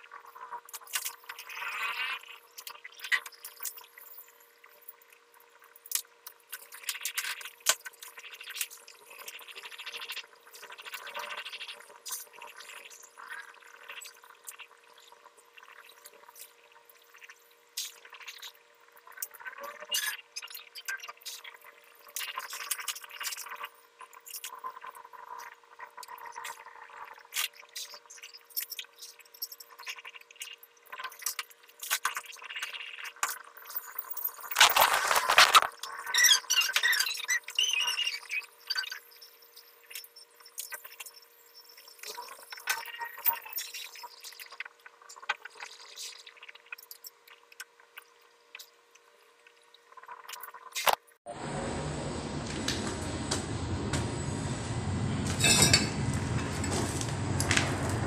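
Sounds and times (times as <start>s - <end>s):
faint steady hum: 51.3s - 58.0s.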